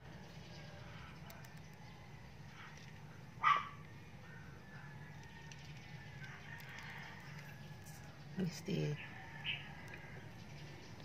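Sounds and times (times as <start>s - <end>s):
low background hum: 0.0s - 11.0s
dog high cry: 3.4s - 3.8s.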